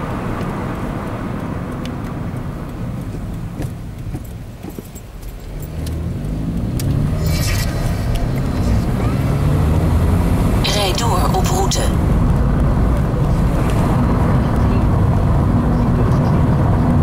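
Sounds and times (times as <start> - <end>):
car engine and road noise: 0.0 - 17.0
clicks and rattles inside car: 0.1 - 7.0.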